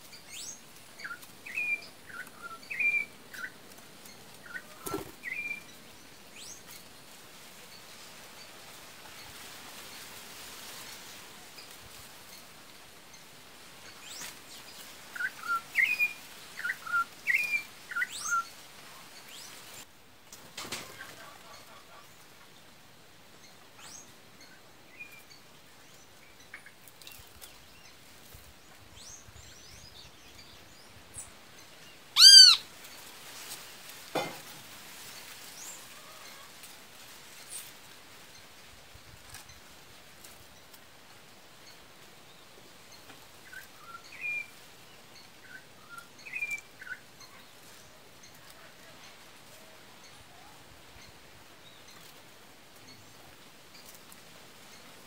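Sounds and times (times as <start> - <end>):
songbirds chirping: 0.0 - 55.0
loud harsh bird call: 32.2 - 32.6.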